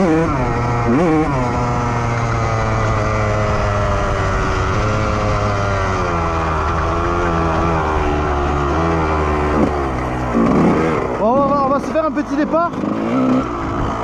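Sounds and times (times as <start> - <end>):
two-stroke engine revving: 0.0 - 14.0.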